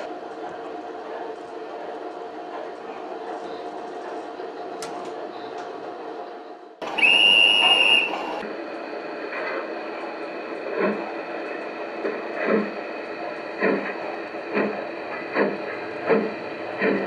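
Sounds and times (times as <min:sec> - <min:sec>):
steam locomotive chuffs: 0:00.0 - 0:17.0
steam locomotive whistle: 0:06.8 - 0:08.4.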